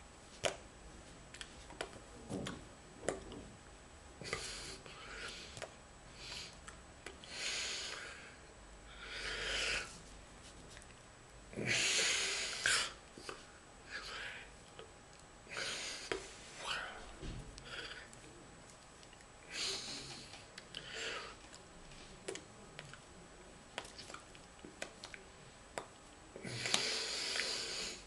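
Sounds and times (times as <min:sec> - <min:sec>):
person breathing and sniffing: 0:19.5 - 0:21.5, 0:26.4 - 0:28.0.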